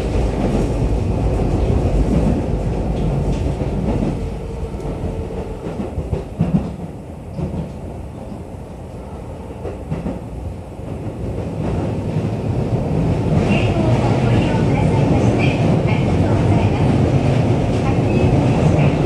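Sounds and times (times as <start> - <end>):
rail clicks: 0.0 - 8.8, 9.4 - 19.0
train wheels rumbling on rail: 0.0 - 19.0.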